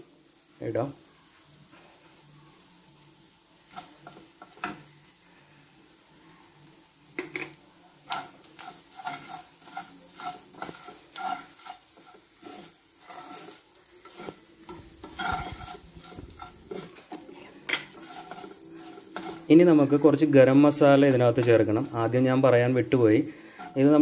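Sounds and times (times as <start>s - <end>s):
faint frying sizzle: 0.0s - 24.0s
wooden spatula scraping frying pan: 3.7s - 4.9s, 7.1s - 24.0s.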